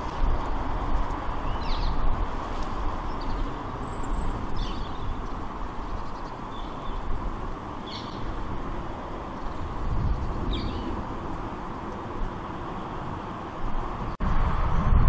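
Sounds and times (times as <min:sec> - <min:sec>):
rushing background noise: 0:00.0 - 0:15.0
high bird chirps: 0:03.0 - 0:07.1, 0:07.8 - 0:08.4, 0:09.4 - 0:11.0.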